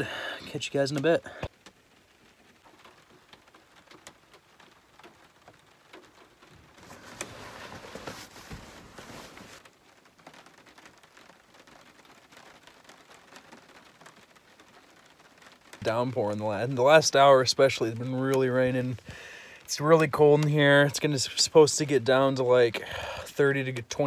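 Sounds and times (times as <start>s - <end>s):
rain pattering on roof: 0.0s - 24.0s
bedding rustling: 6.5s - 9.7s.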